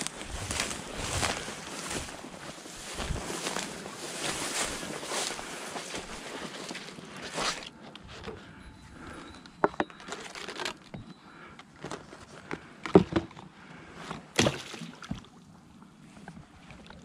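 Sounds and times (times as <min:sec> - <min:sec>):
knocks and clatters of gear: 0:09.1 - 0:13.4
decoy splashing into water: 0:14.4 - 0:15.3.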